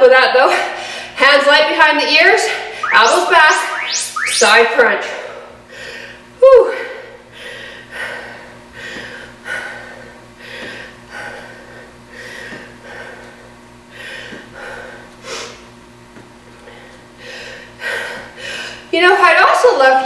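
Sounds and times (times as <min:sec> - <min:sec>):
woman breathing hard: 0:05.7 - 0:15.6, 0:16.7 - 0:18.9.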